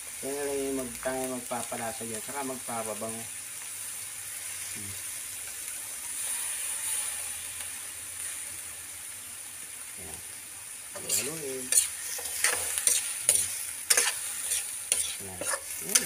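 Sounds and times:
food sizzling in oil: 0.0 - 16.0
metal spatula scraping wok: 6.0 - 7.6, 11.0 - 16.0.

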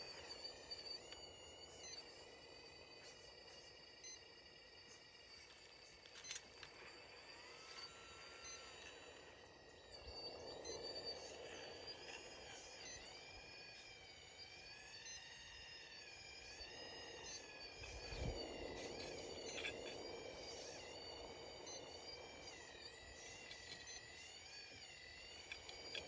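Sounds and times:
faint high motor whine: 0.0 - 26.0.

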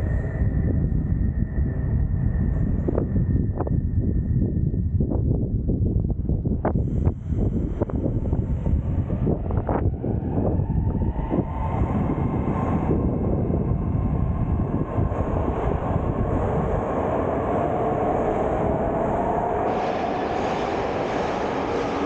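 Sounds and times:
train wheels rumbling on rail: 6.7 - 22.0
hiss: 19.7 - 22.0.

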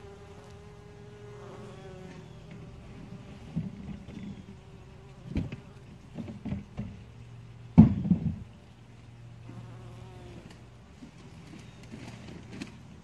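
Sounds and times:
bumblebee buzzing: 0.0 - 6.8, 9.4 - 10.8.

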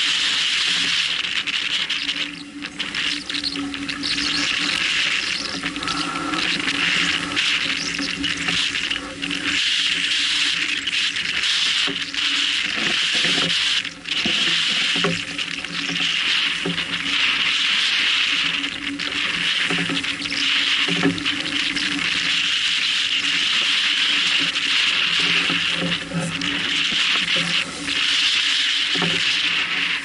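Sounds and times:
water rushing along a hull: 0.0 - 30.0
steady low hum: 1.8 - 9.6.

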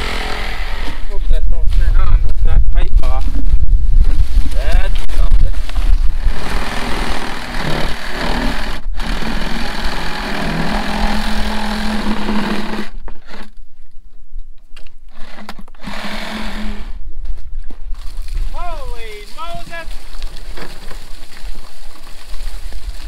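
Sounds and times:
wind buffeting microphone: 0.0 - 9.1.

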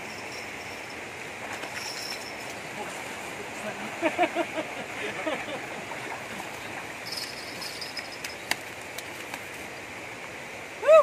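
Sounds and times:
stream water running: 0.0 - 11.0
sharp clicks in water: 8.2 - 9.6.

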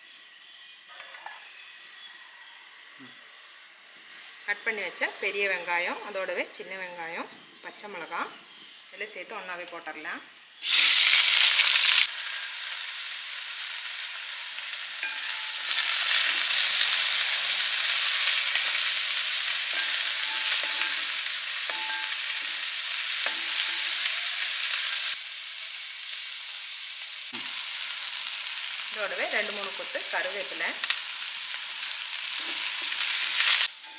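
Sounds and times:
onions sizzling in hot oil: 10.6 - 33.9.

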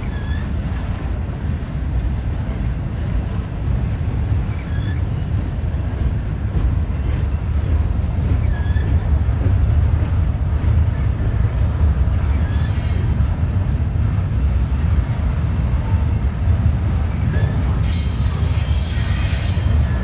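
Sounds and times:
high wheel squeaks: 0.0 - 1.5, 4.4 - 5.6, 8.2 - 9.3, 12.2 - 13.2, 17.1 - 20.0
train wheels rumbling on rails: 0.0 - 20.0.

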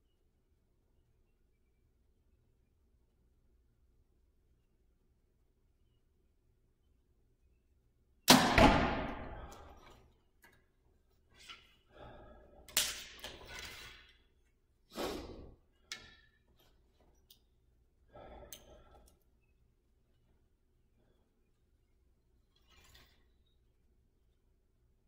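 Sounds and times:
arrow striking target: 8.3 - 9.8
bow shot crack: 8.3 - 9.8
arrow handling clicks and rustles: 12.7 - 14.6, 22.5 - 23.6.

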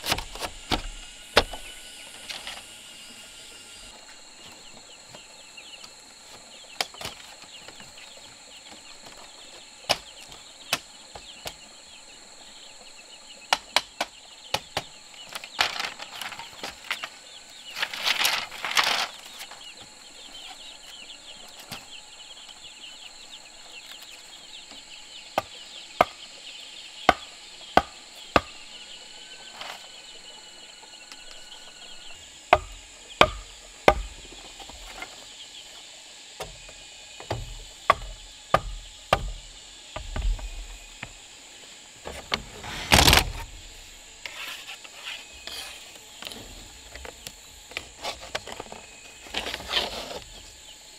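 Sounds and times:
high insect drone: 0.0 - 50.9
rustling and scraping: 15.3 - 22.0, 42.0 - 50.6
sharp knocks on wood: 32.6 - 34.8, 36.4 - 41.2.

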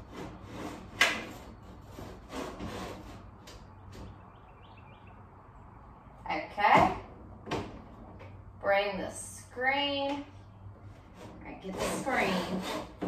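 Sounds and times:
window scraping along track: 0.0 - 4.2, 10.9 - 13.0.

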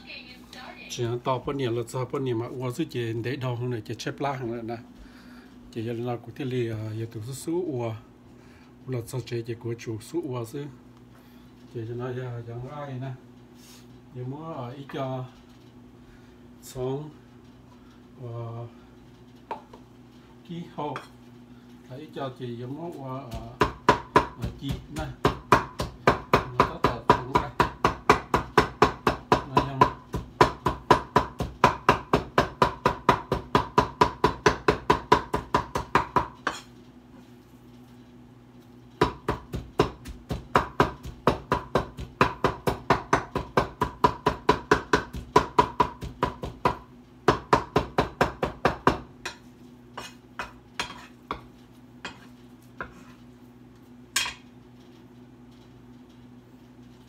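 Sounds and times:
knife chopping meat on wooden board: 23.3 - 36.7, 39.0 - 49.4, 50.0 - 53.0.

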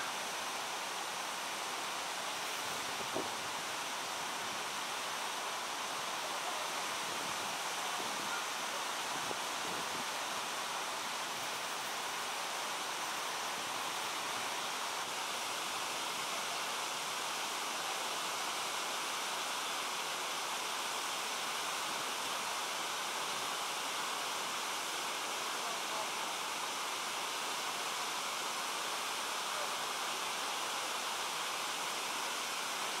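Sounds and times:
water rushing over a ledge: 0.0 - 33.0.

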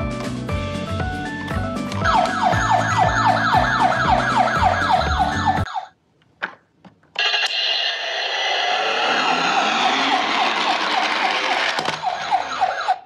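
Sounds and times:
background music: 0.0 - 5.7
toy siren yelping: 2.0 - 5.9, 7.2 - 13.0
wavering toy siren: 2.0 - 5.9, 7.2 - 13.0.

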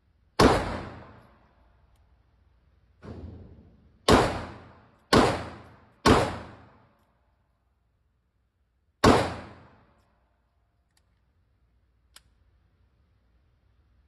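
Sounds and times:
echoing pistol shots: 0.4 - 1.2, 4.0 - 6.8, 9.0 - 9.9.

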